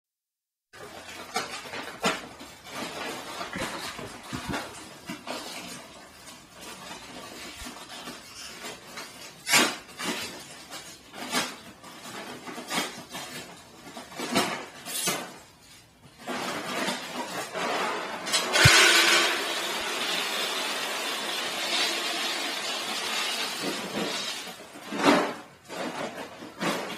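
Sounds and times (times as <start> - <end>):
kibble pouring into plastic bin: 16.3 - 25.6.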